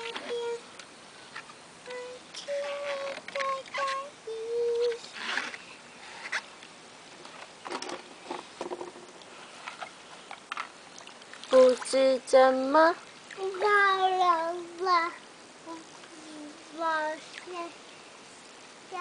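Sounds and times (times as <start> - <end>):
little girl singing: 0.0 - 0.8, 1.8 - 5.2, 11.5 - 17.8
quiet vocal sounds: 11.5 - 19.0.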